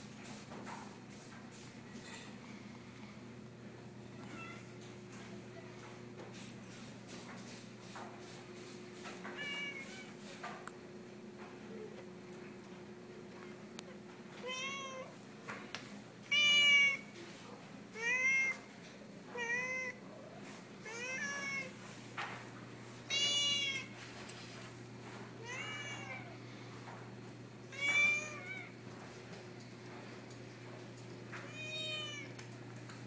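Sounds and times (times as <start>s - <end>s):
cat meowing: 14.4s - 15.1s, 16.3s - 17.0s, 23.1s - 23.9s, 27.7s - 28.7s, 31.5s - 32.4s.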